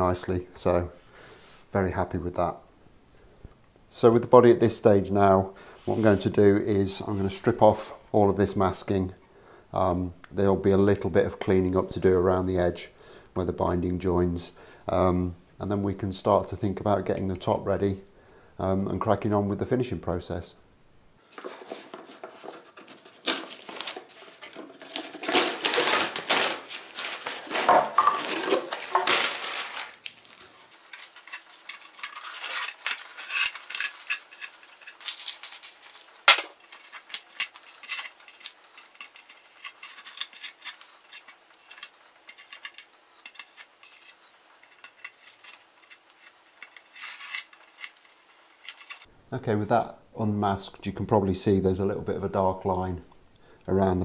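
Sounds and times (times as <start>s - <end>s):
tape crinkling: 21.8s - 49.1s
masking tape peeling: 23.1s - 49.1s.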